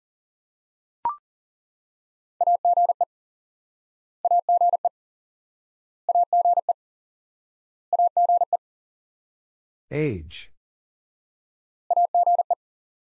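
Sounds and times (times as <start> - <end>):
morse code beeps: 11.9 - 12.6.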